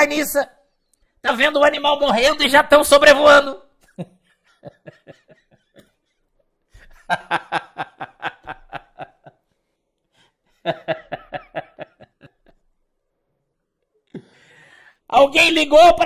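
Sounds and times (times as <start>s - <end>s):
man laughing heartily: 3.8s - 9.4s, 10.6s - 12.6s.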